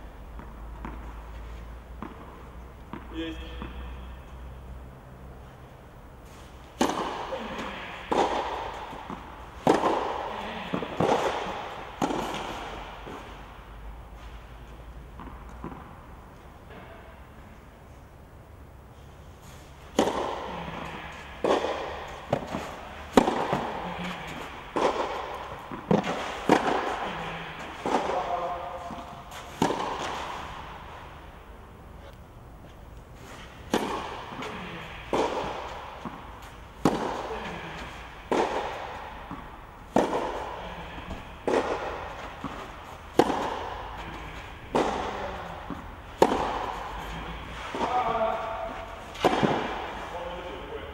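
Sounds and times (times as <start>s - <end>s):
tennis ball struck with racket: 0.3s - 1.2s, 1.9s - 4.1s, 6.7s - 13.6s, 19.8s - 31.5s, 33.2s - 50.9s.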